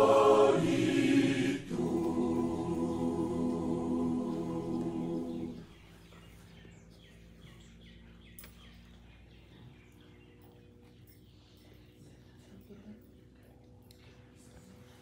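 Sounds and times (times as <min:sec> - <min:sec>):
choir singing a hymn: 0:00.0 - 0:05.8.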